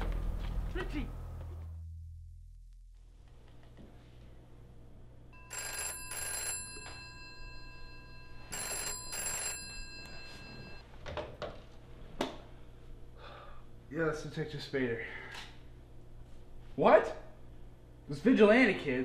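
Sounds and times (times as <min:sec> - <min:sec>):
telephone ringing: 0:05.4 - 0:10.8.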